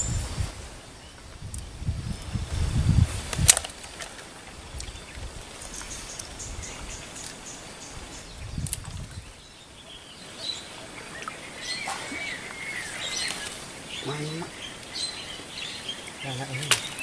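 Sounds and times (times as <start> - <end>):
low rumbling on microphone: 0.0 - 3.5, 7.9 - 9.9.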